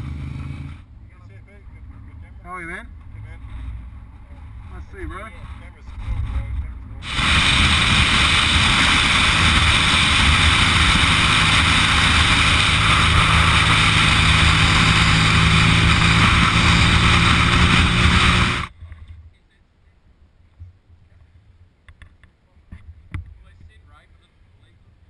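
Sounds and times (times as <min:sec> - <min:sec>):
motorcycle engine droning: 0:00.0 - 0:19.6
wind rushing over camera: 0:03.4 - 0:19.4.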